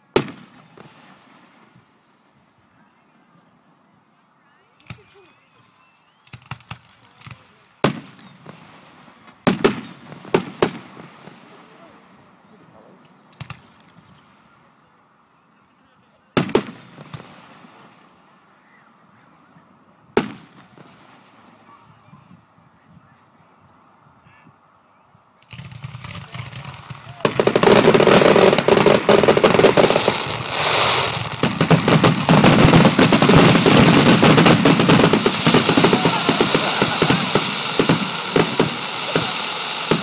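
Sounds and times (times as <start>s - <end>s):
fireworks bangs and crackling: 0.0s - 1.7s, 6.3s - 12.0s, 13.3s - 14.5s, 16.4s - 18.1s, 20.1s - 21.8s, 25.4s - 40.0s.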